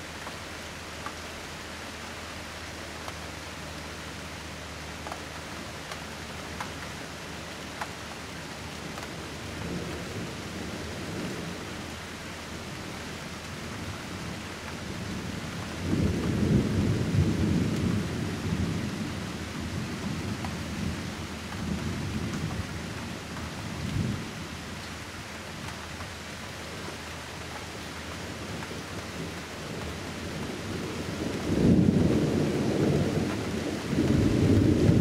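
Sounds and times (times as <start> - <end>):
steady rain: 0.0 - 35.0
thunder rumbling: 14.9 - 23.2, 28.4 - 35.0.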